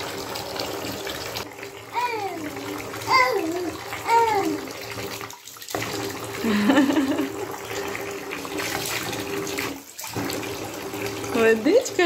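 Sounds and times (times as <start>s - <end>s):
water splashing in a bath: 0.0s - 12.0s
baby babbling: 1.9s - 4.7s.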